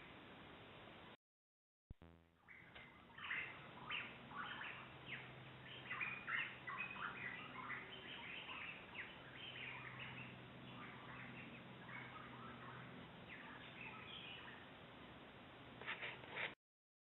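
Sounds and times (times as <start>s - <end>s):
flock of birds chirping: 2.5s - 14.7s.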